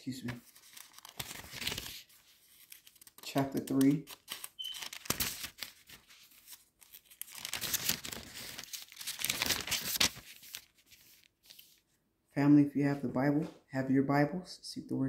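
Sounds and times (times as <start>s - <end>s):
thin pages rustling: 0.0s - 12.0s.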